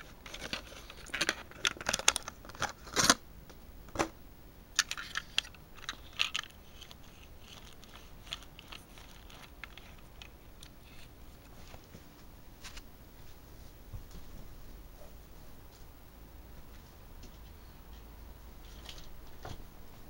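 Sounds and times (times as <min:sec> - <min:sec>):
paper crackling: 0:00.0 - 0:03.2, 0:05.0 - 0:12.0
toy car clicks: 0:04.8 - 0:10.8.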